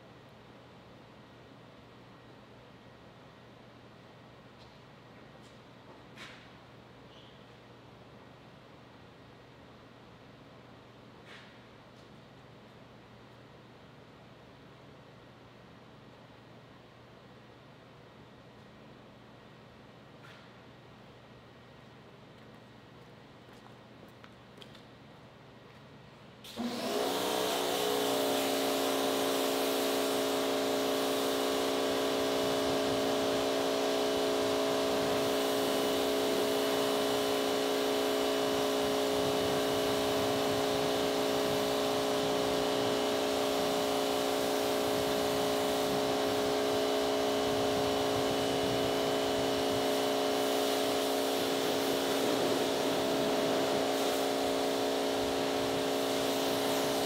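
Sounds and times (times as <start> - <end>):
pressure washer motor running: 26.5 - 57.0
water jet hissing on car: 26.6 - 57.0.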